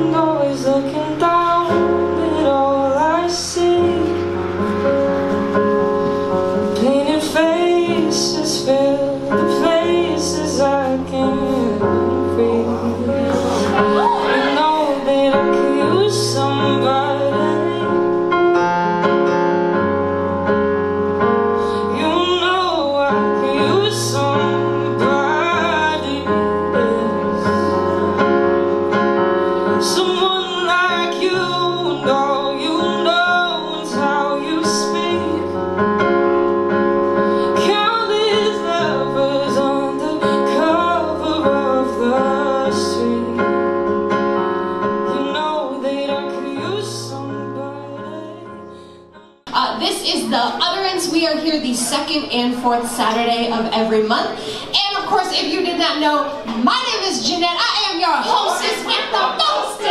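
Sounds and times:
woman singing slow song: 0:00.0 - 0:04.3, 0:06.7 - 0:18.3, 0:21.7 - 0:28.2, 0:29.7 - 0:35.7, 0:37.4 - 0:43.7, 0:45.0 - 0:48.7
piano accompaniment: 0:00.0 - 0:59.9.

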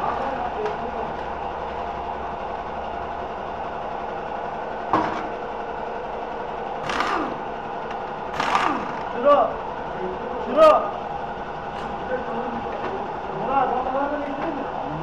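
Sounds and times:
electric drill bursts: 0:06.8 - 0:09.8.

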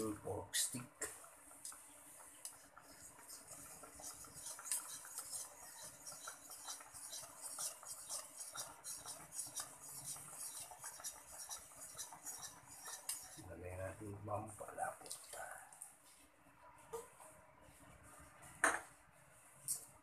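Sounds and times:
sauce bubbling in a wok: 0:01.1 - 0:13.4.

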